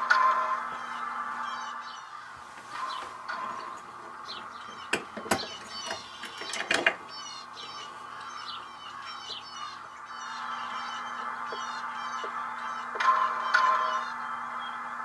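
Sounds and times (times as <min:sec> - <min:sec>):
birds chirping: 0:00.0 - 0:15.0
metal clicks and rattle: 0:04.9 - 0:07.0.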